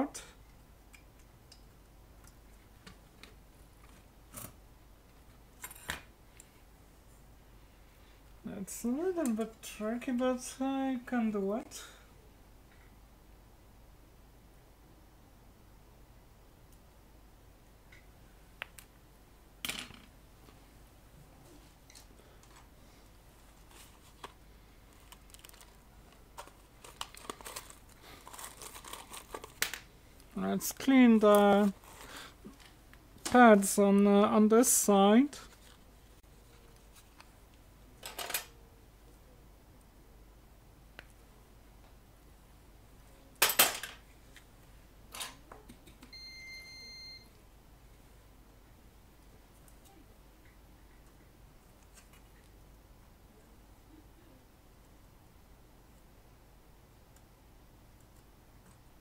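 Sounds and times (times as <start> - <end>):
rustling: 21.3 - 33.3, 35.4 - 37.6.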